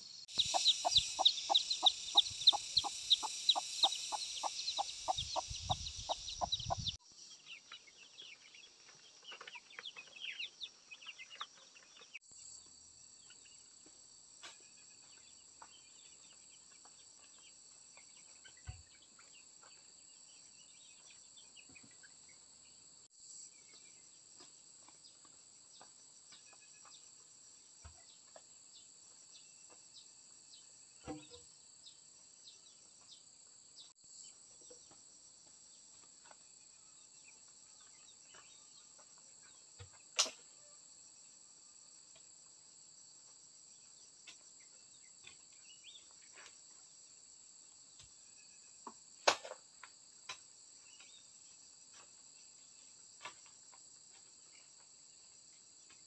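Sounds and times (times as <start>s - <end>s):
high-pitched insect chorus: 0.0s - 7.4s.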